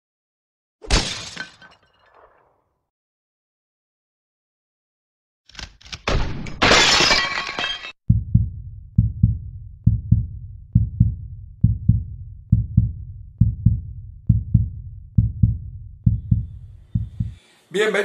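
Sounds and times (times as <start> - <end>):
glass shattering crash: 0.8 - 2.5, 6.1 - 8.0
heartbeat thumps: 8.1 - 17.4.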